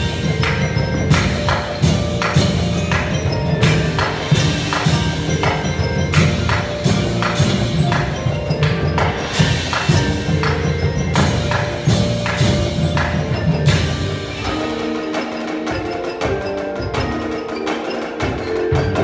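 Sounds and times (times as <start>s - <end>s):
low drums: 0.0s - 19.0s
marimba notes: 0.0s - 19.0s.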